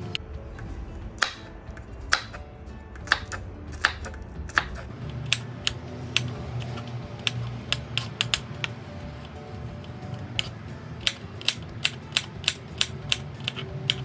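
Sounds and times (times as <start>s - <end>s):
knife chopping on wooden board: 2.1s - 2.4s.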